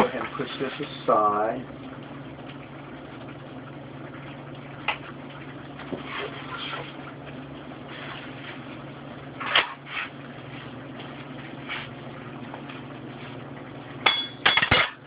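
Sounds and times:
steady low hum: 0:00.0 - 0:15.0
kitchenware clinking: 0:14.0 - 0:15.0.

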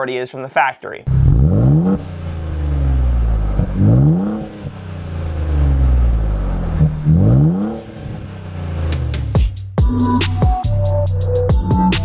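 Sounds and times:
car engine revving: 0:01.1 - 0:10.2
steady exhaust note: 0:01.1 - 0:12.0.

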